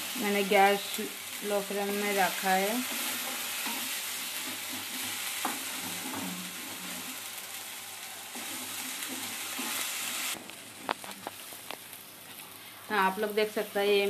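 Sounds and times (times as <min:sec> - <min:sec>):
paste sizzling in oil: 0:00.0 - 0:10.4
spatula stirring and scraping pan: 0:00.0 - 0:11.7.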